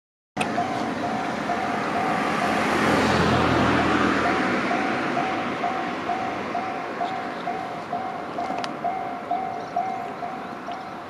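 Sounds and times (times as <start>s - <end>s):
car driving past: 0.4s - 8.2s.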